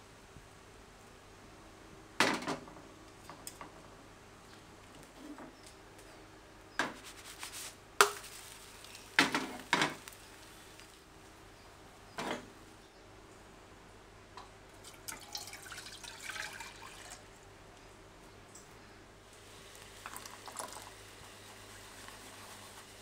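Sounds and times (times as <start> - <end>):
liquid pouring into saucepan: 14.8 - 17.3, 20.0 - 21.0.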